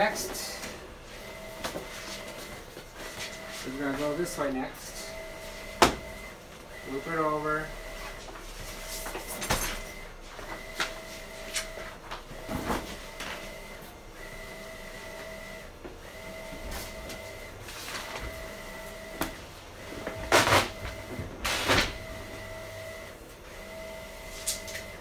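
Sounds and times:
vinyl sheet rustling: 0.0 - 5.7, 16.6 - 22.0
printer carriage whine: 0.0 - 25.0.

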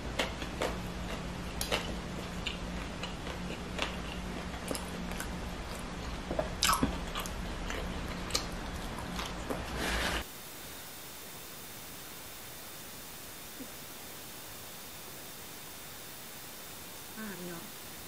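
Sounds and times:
chewing and mouth sounds: 0.1 - 9.6.

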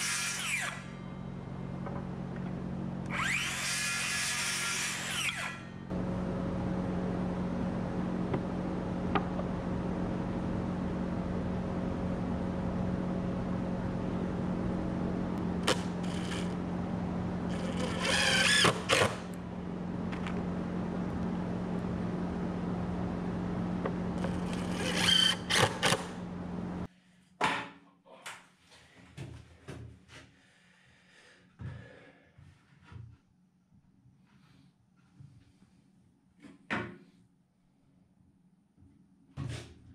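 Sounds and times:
drill motor whine: 0.0 - 6.6, 15.4 - 19.5, 23.3 - 26.4
steady mechanical hum: 0.0 - 27.0.

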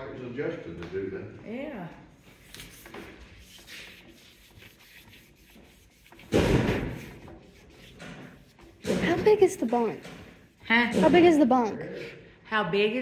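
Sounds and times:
faint rubbing: 2.1 - 12.1.

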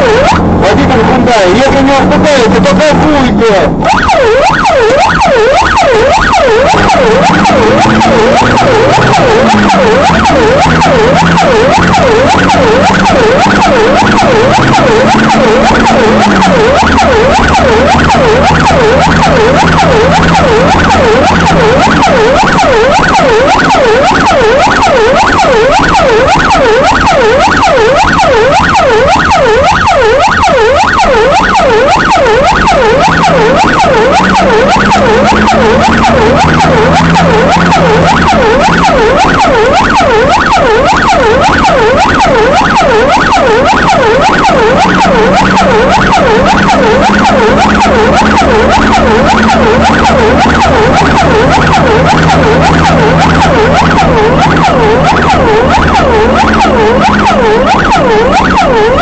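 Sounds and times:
electronic siren wailing: 0.0 - 59.0
vehicle engine: 0.0 - 59.0.

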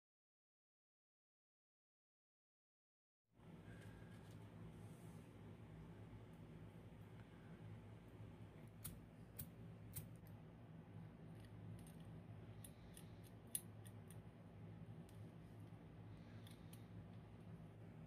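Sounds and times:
low steady hum: 3.4 - 18.0
small metal parts clicking: 11.3 - 14.3, 16.4 - 16.9.

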